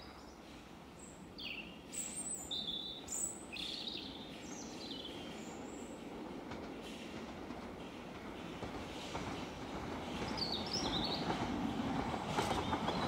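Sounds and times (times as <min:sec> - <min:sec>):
songbirds singing: 0:00.0 - 0:06.2, 0:09.9 - 0:11.6.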